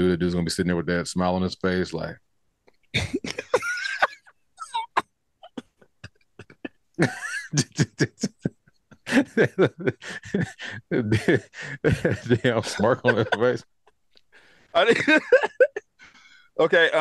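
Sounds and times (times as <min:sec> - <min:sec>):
man coughing: 0:03.0 - 0:04.1, 0:06.4 - 0:08.5, 0:09.1 - 0:13.6, 0:14.8 - 0:15.8
man laughing: 0:03.0 - 0:05.0, 0:06.4 - 0:13.6, 0:14.8 - 0:15.9.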